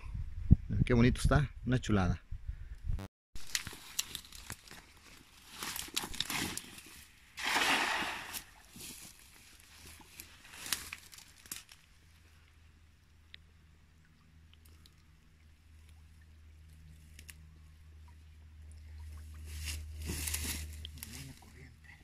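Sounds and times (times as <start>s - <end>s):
net splashing onto water: 7.4s - 8.8s.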